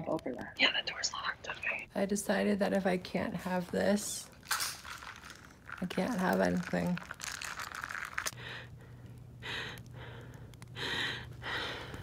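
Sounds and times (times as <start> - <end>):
steady low hum: 7.9 - 12.0
woman breathing heavily: 8.4 - 12.0.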